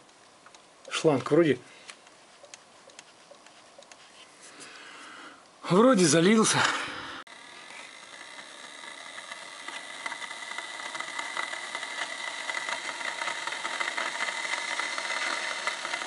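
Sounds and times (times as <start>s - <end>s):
heater hissing and crackling: 0.0s - 16.0s.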